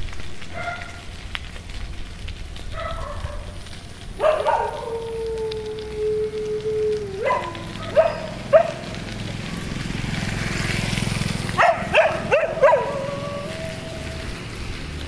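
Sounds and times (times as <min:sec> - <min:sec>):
dog barking: 0:00.5 - 0:01.0, 0:02.7 - 0:03.6, 0:04.2 - 0:05.0, 0:07.2 - 0:08.9, 0:11.6 - 0:13.6
dog howling: 0:04.2 - 0:08.9, 0:11.6 - 0:14.4.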